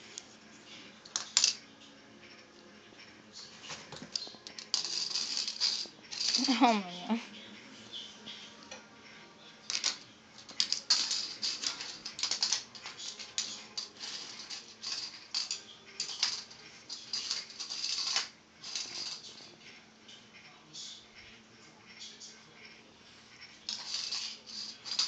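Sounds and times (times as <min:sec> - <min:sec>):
electric fan humming: 0:03.9 - 0:07.3.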